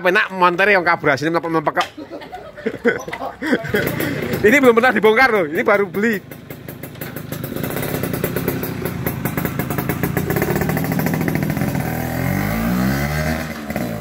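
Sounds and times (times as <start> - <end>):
two-stroke motorcycle revving: 3.2 - 14.0.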